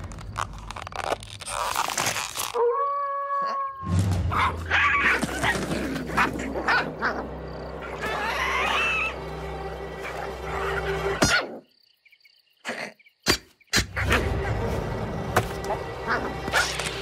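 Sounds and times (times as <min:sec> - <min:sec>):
rising squeaky cry: 0:07.8 - 0:09.2.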